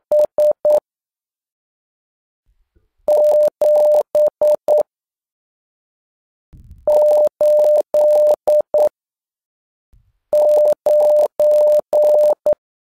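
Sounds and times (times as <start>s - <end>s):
morse code beeps: 0.1s - 0.8s, 3.1s - 4.8s, 6.9s - 8.9s, 10.4s - 12.6s.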